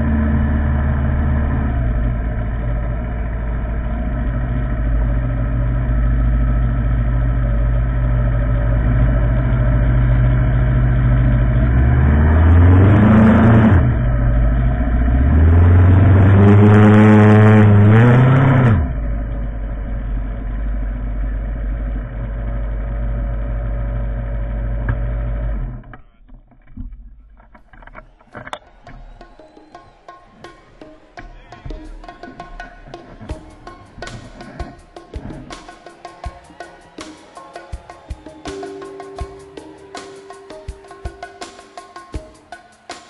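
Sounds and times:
motorcycle engine accelerating: 0.0 - 26.2.

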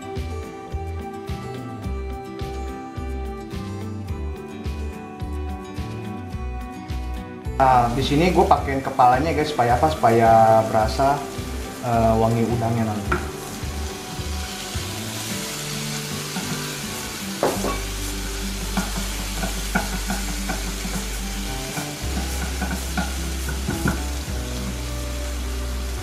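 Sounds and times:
food sizzling in oil: 7.6 - 26.0.

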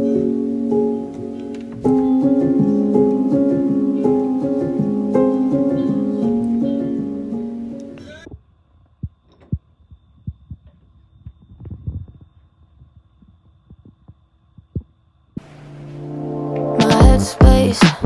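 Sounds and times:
background music: 0.0 - 8.2, 15.4 - 18.0
soft footsteps: 8.2 - 15.0.

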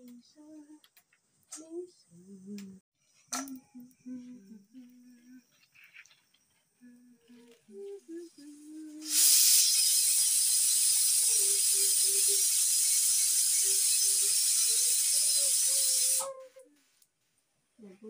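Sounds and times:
pressure cooker steam hissing: 9.0 - 16.4.

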